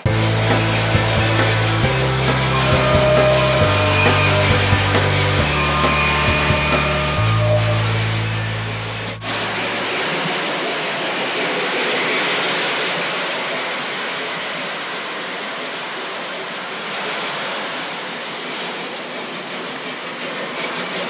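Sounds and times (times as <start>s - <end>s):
toy train whirring rumble: 0.0s - 13.7s
high-pitched chirping: 0.5s - 10.0s.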